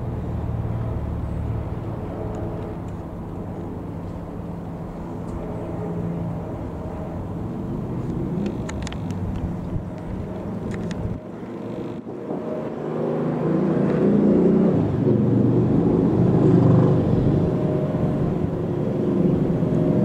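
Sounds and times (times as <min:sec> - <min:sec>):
propeller plane droning overhead: 0:00.0 - 0:20.0.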